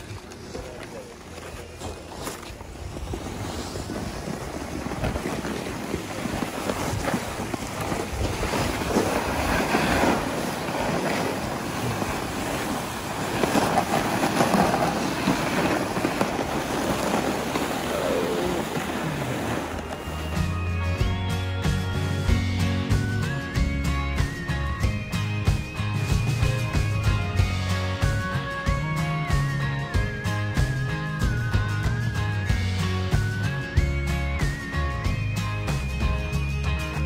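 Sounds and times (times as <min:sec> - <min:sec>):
wind on microphone: 0:02.4 - 0:20.6.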